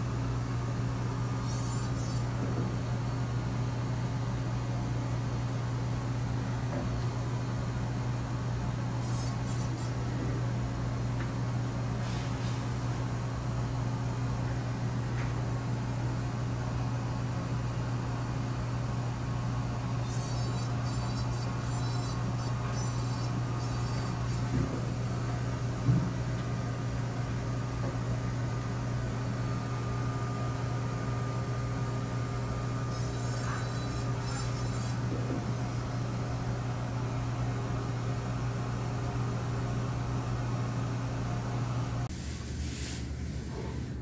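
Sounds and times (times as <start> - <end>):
low mechanical hum: 0.0 - 44.0.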